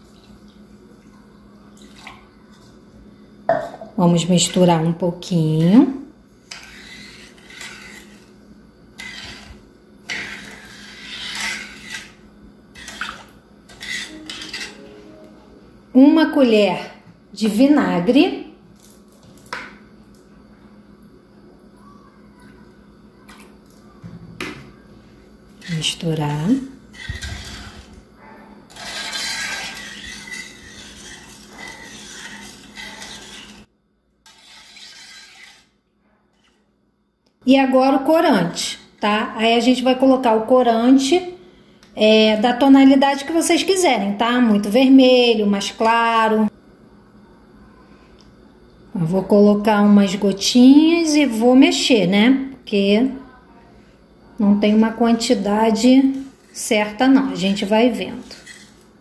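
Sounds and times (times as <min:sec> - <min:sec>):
metal spoon scraping saucepan: 0:06.4 - 0:08.3, 0:09.0 - 0:14.9, 0:25.6 - 0:28.0, 0:28.7 - 0:36.6, 0:55.3 - 0:58.8.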